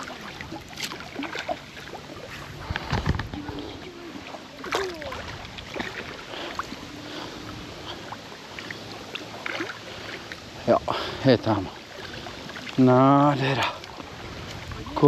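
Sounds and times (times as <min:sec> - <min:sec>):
small splashes and knocks: 0:00.0 - 0:07.2, 0:07.8 - 0:10.4
water splashing at the bank: 0:00.0 - 0:15.0.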